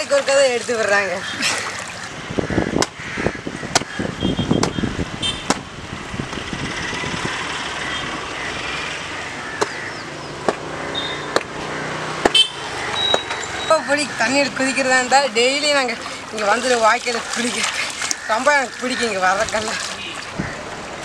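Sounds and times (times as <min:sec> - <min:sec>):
water rushing along a canal: 0:00.0 - 0:21.0
sharp slaps: 0:02.8 - 0:03.0, 0:03.7 - 0:03.9, 0:05.4 - 0:05.7, 0:11.3 - 0:12.4.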